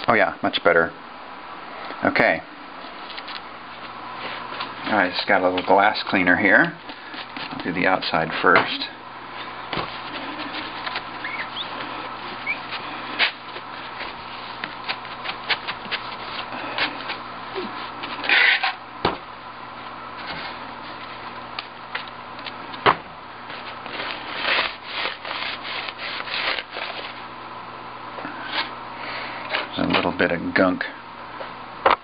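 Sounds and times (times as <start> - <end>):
paper towel rubbing on glass: 9.9 - 18.0, 23.6 - 27.0.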